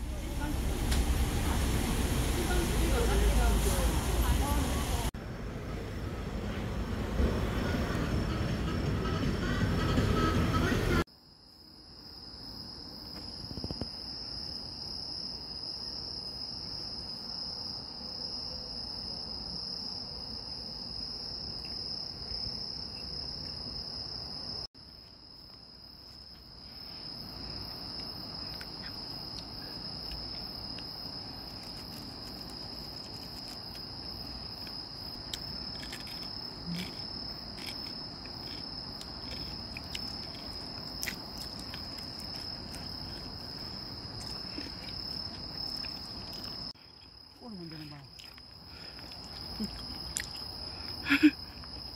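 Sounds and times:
crickets trilling: 0:11.0 - 0:51.9.

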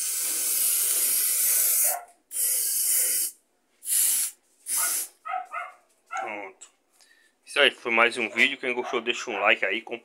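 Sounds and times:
spray paint can hissing: 0:00.0 - 0:05.2.

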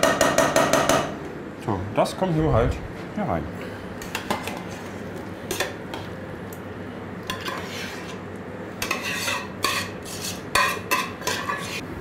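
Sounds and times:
spoon scraping steel pot: 0:07.2 - 0:08.2, 0:08.8 - 0:11.8.

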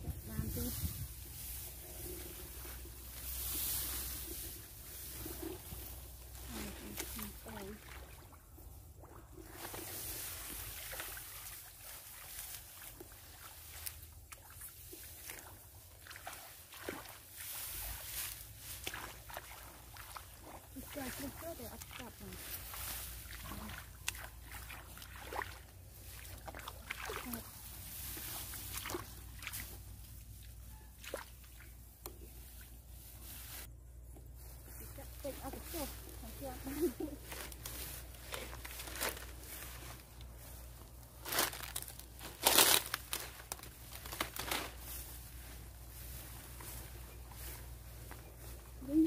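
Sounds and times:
steady low rumble: 0:00.0 - 0:07.5
dry grass rustling: 0:00.0 - 0:07.8, 0:09.4 - 0:30.9, 0:31.5 - 0:49.0
water and mud splashing: 0:00.0 - 0:33.7, 0:34.9 - 0:49.0.

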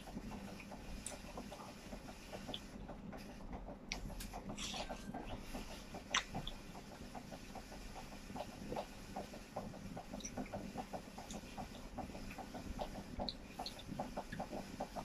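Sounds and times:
man chewing with mouth clicks: 0:02.4 - 0:02.7, 0:03.9 - 0:06.8, 0:10.1 - 0:14.7.

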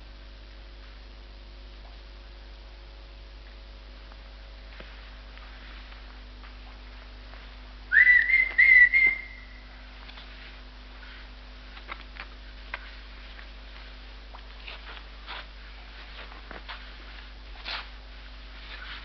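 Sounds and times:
low soundtrack hum: 0:00.0 - 0:19.0
loud high whistle: 0:07.9 - 0:09.8.

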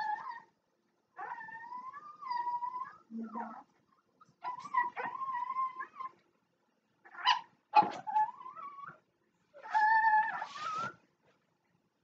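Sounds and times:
dog whining: 0:00.0 - 0:00.6, 0:01.2 - 0:03.7, 0:04.4 - 0:06.2, 0:07.1 - 0:11.0.

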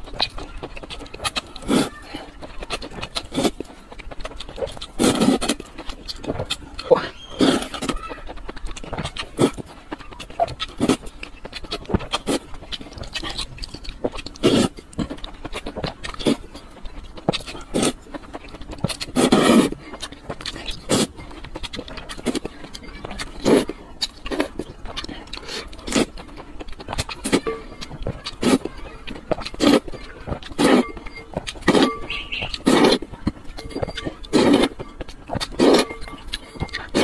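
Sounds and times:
slurping noodles: 0:00.8 - 0:03.8, 0:04.6 - 0:08.0, 0:14.1 - 0:15.1, 0:17.3 - 0:22.6, 0:23.2 - 0:26.3, 0:27.0 - 0:28.7, 0:29.3 - 0:37.0.

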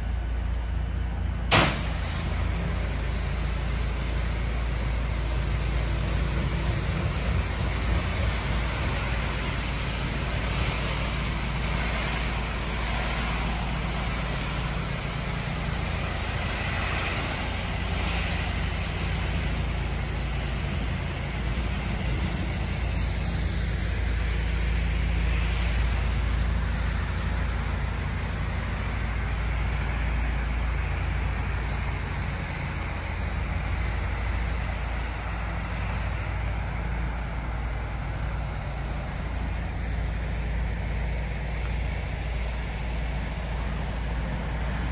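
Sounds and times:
pressure washer engine drone: 0:00.0 - 0:44.9
high-pressure water spraying: 0:01.5 - 0:28.2.

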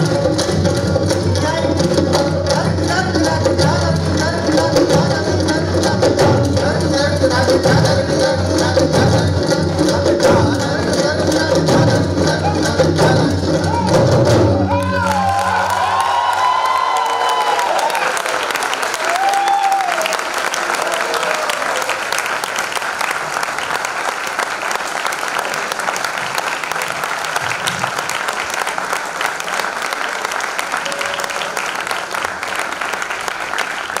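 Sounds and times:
person cheering: 0:14.6 - 0:21.9
audience applauding: 0:14.6 - 0:34.0.

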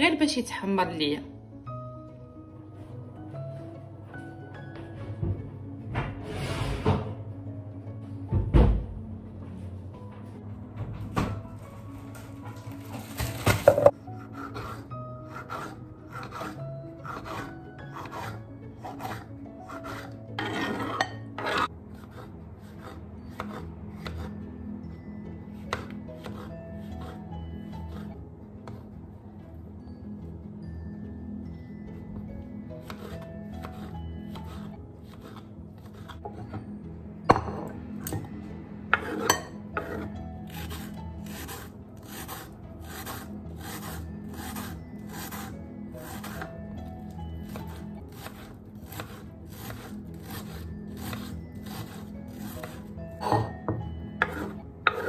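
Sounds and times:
knife cutting on wooden board: 0:13.1 - 0:24.4, 0:25.7 - 0:27.2, 0:32.8 - 0:36.6, 0:38.9 - 0:46.5, 0:47.4 - 0:53.5, 0:54.2 - 0:55.0
knife chopping on wooden board: 0:39.0 - 0:46.5, 0:47.5 - 0:53.5.

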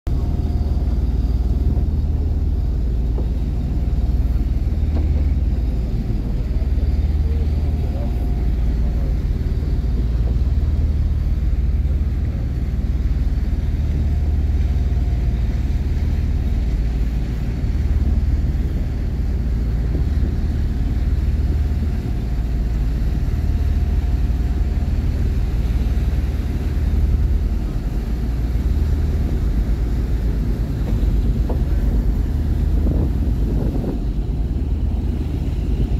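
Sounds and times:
diesel ship engines idling: 0:00.1 - 0:35.9.

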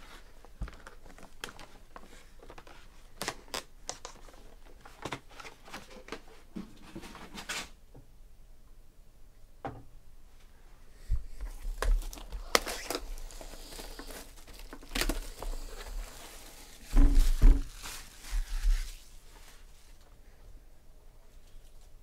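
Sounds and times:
plastic shrink-wrap tearing: 0:11.7 - 0:19.2.

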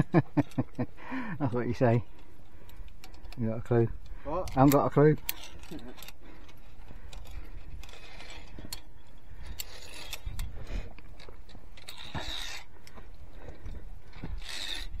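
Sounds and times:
carabiners clicking on steel cable: 0:00.0 - 0:15.0.

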